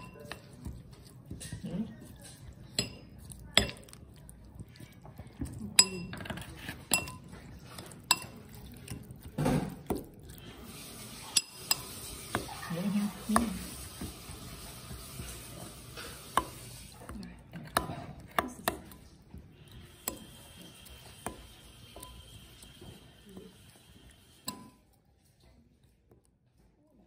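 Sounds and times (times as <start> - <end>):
spoon clinking against glass: 0.0 - 0.4, 5.8 - 6.3, 6.9 - 7.3, 8.1 - 8.5, 24.4 - 24.8
spoon stirring wet sauce: 0.0 - 26.5.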